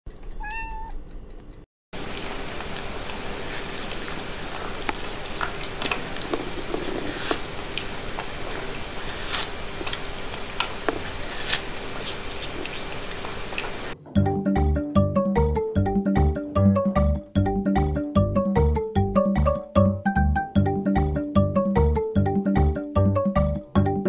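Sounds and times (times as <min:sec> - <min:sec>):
cat chewing watermelon: 0:03.4 - 0:13.7.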